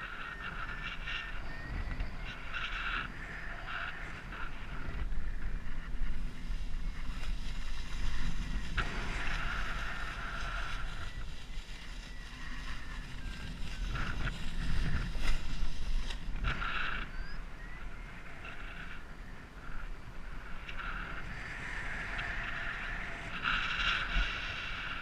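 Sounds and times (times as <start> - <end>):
high electronic variometer tone: 0.0 - 16.2
wind rushing over microphone: 0.0 - 25.0.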